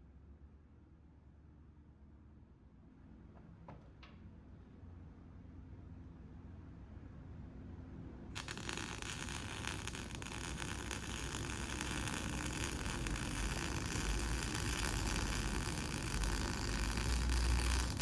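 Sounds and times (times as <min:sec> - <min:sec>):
welding arc sizzling crackle: 0:08.4 - 0:18.0.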